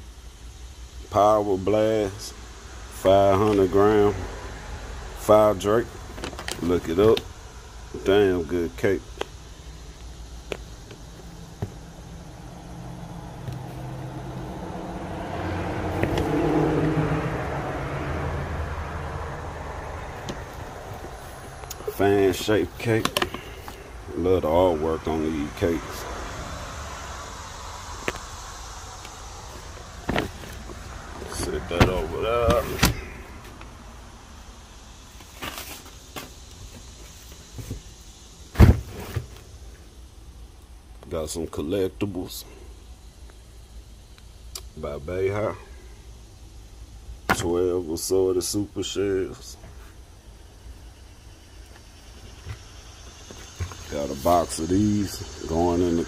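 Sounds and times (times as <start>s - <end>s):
low hum: 3.6s - 34.8s
box heavy thump: 30.0s - 33.2s, 38.6s - 39.3s.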